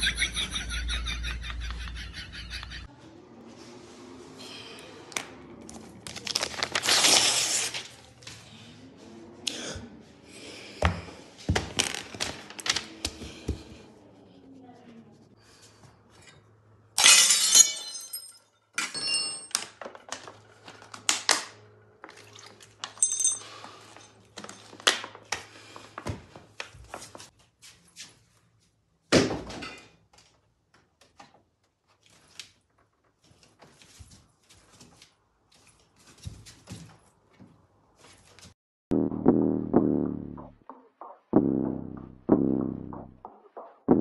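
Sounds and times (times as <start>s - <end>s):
glass shattering: 17.0s - 19.8s
objects knocking and clattering: 17.9s - 23.5s.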